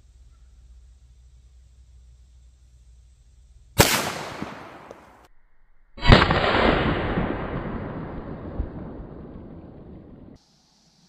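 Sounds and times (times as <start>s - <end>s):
pistol shots ringing: 3.8s - 5.2s.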